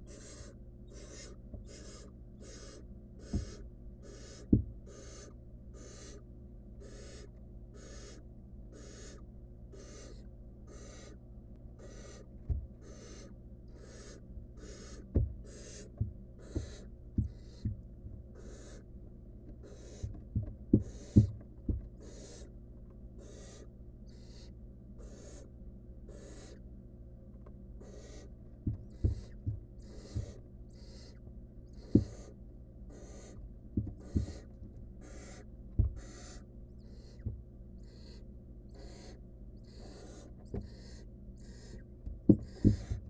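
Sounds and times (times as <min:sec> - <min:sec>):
owl chicks hissing calls: 0:00.0 - 0:06.2, 0:06.8 - 0:11.2, 0:11.8 - 0:17.7, 0:18.4 - 0:18.9, 0:19.6 - 0:20.2, 0:20.8 - 0:21.3, 0:22.0 - 0:22.5, 0:23.2 - 0:25.5, 0:26.1 - 0:26.6, 0:27.8 - 0:28.3, 0:28.9 - 0:33.4, 0:34.0 - 0:43.0
steady low hum: 0:00.0 - 0:43.0
dull thumps on wooden box: 0:03.3 - 0:03.6, 0:04.5 - 0:04.8, 0:15.1 - 0:15.4, 0:16.0 - 0:18.2, 0:20.0 - 0:21.9, 0:28.6 - 0:30.4, 0:31.9 - 0:32.3, 0:33.8 - 0:34.8, 0:42.1 - 0:43.0.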